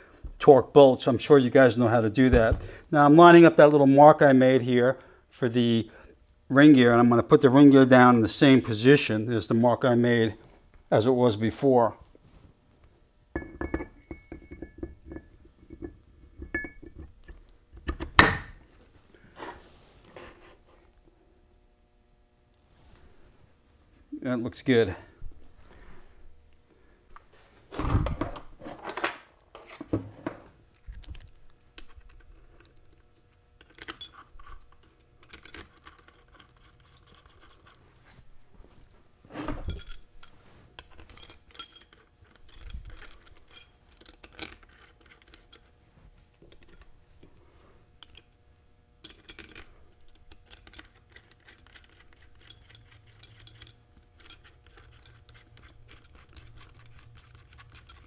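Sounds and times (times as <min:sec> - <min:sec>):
metal bolts clinking and rattling: 0:13.4 - 0:18.0, 0:33.6 - 0:37.8, 0:39.5 - 0:45.8, 0:49.0 - 0:58.0.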